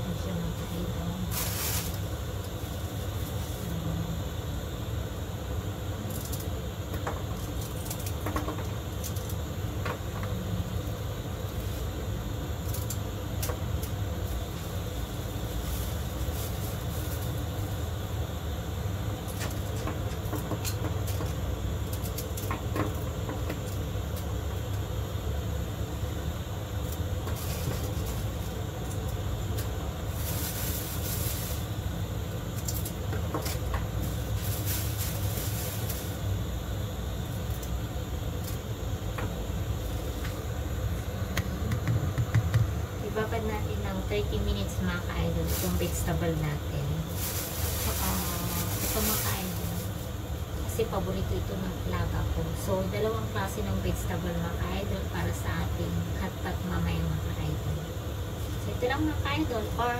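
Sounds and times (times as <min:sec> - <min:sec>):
clicks and rustles of leafy greens: 0:00.5 - 0:03.9, 0:06.0 - 0:09.4, 0:10.0 - 0:17.8, 0:26.8 - 0:36.5, 0:43.7 - 0:50.8
steady low rumble: 0:23.8 - 0:57.8.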